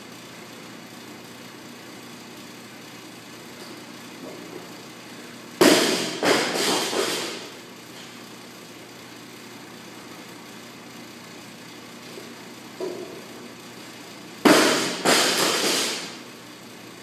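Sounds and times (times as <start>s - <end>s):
barbell dropped on rubber floor: 5.6s - 7.4s, 14.5s - 16.1s.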